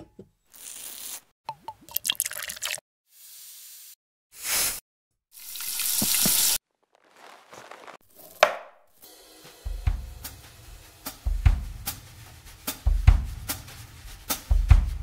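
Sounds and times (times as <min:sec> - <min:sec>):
liquid pouring: 0:01.6 - 0:02.8, 0:05.4 - 0:07.6.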